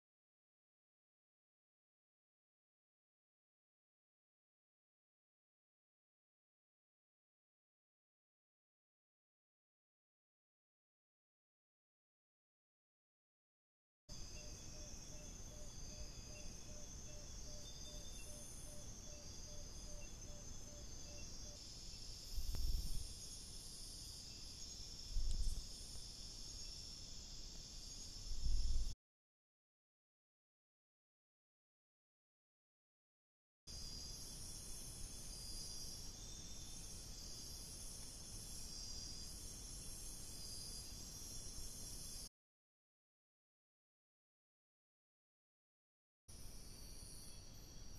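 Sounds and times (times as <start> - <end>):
insects shrilling: 14.2 - 29.0
microphone hiss: 17.4 - 29.0.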